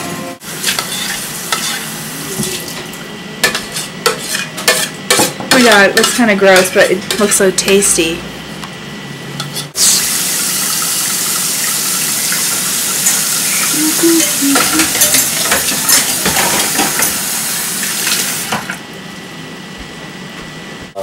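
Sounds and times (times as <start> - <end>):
tap water running into pan: 9.8 - 18.8
dishes and utensils clinking: 13.0 - 17.2.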